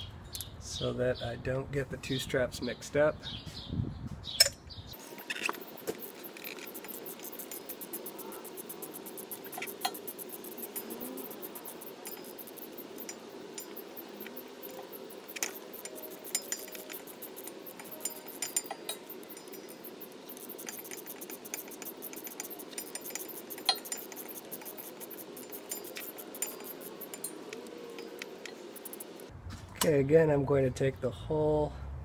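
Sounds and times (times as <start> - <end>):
wrench clicking on bolts: 4.4 - 29.3.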